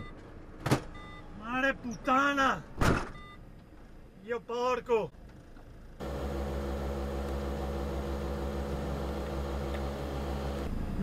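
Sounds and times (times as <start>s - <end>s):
diesel truck engine running: 5.9s - 10.7s.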